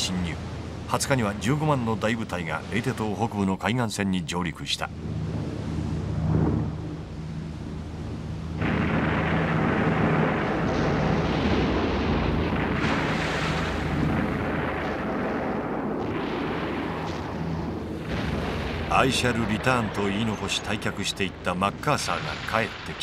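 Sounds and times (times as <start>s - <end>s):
low droning rumble: 4.9s - 23.0s
explosions: 8.6s - 23.0s.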